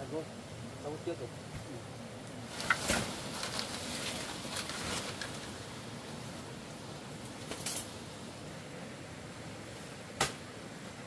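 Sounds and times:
outdoor background noise: 0.0s - 11.0s
branches cracking: 2.5s - 5.6s, 7.2s - 8.0s.

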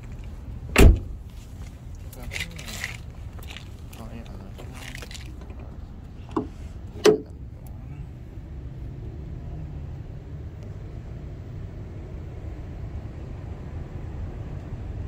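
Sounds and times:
steady low rumble: 0.0s - 15.0s
car hood metal clunks: 0.7s - 1.1s, 6.3s - 7.3s.

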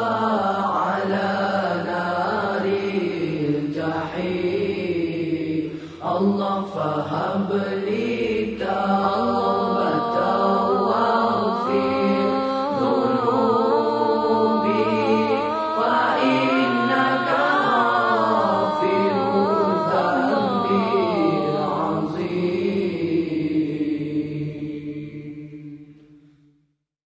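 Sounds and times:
person chanting melismatic lines: 9.1s - 23.4s.

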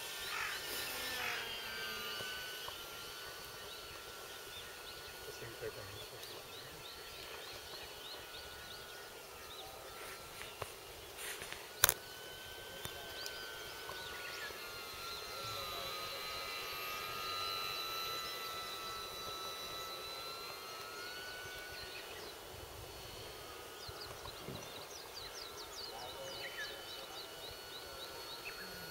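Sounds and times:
model plane motor whining: 0.0s - 28.9s
sharp click: 11.8s - 12.0s.

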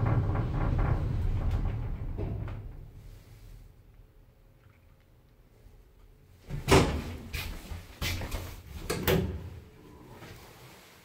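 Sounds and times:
lift doors knocking and rattling: 0.0s - 3.0s.

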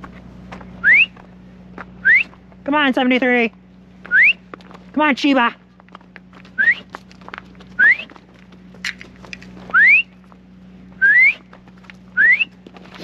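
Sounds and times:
person whistling upward: 0.8s - 1.1s, 2.0s - 2.3s, 4.1s - 4.4s, 6.6s - 6.8s, 9.7s - 10.1s, 11.0s - 11.4s, 12.2s - 12.5s.

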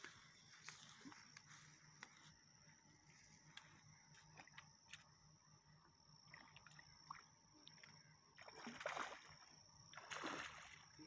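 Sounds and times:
faint steady high whine: 0.0s - 11.0s
water splashing: 8.4s - 11.0s.

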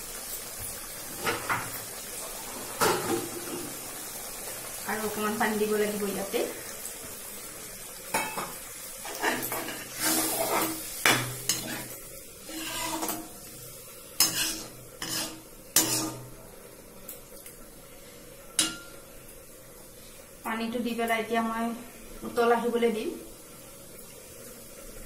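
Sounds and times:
light sizzle: 0.0s - 25.0s
metal spatula scraping wok: 9.0s - 13.6s, 14.2s - 16.4s.

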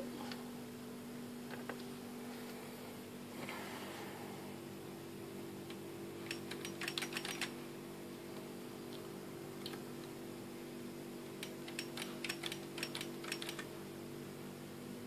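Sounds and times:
low electrical hum: 0.0s - 15.0s
keyboard typing clicks: 6.2s - 7.5s, 11.4s - 13.7s.

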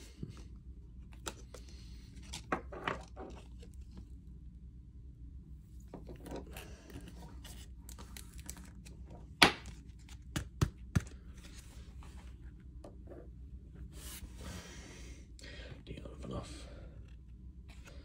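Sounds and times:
cards and wrapper rustling: 6.4s - 11.7s.

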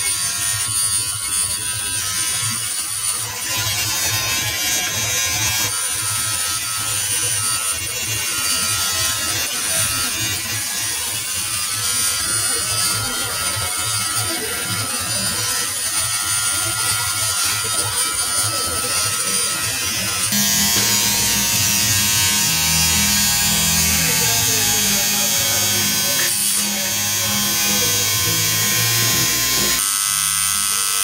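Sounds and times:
tattoo machine buzzing: 0.0s - 31.0s
high whine: 20.2s - 28.2s.

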